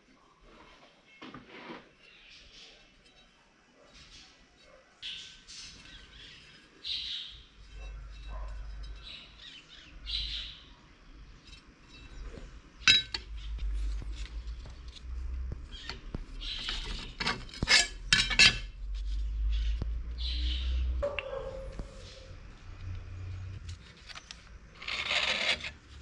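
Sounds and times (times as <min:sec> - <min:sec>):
birds chirping: 0:02.0 - 0:17.4, 0:19.2 - 0:24.6
metal blade clinking on plate: 0:12.9 - 0:13.3.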